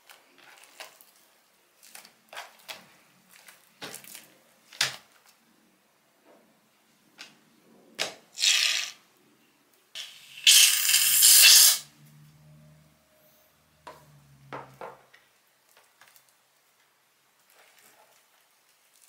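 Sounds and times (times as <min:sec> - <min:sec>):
hissing spray: 0:10.0 - 0:11.9.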